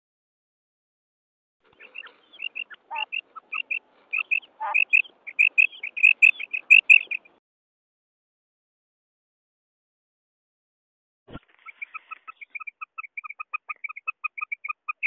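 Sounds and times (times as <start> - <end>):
quail calling: 1.7 - 7.4, 11.3 - 15.0.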